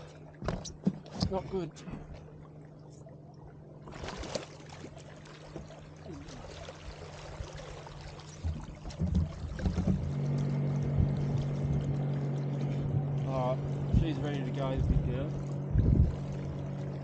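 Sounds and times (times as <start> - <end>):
steady low hum: 0.0 - 17.0
water splashing against boat: 0.0 - 17.0
low knocks: 8.4 - 10.2.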